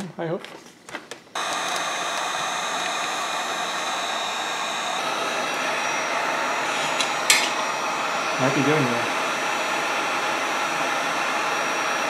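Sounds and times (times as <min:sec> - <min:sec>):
heat gun blower running: 0:01.4 - 0:12.0.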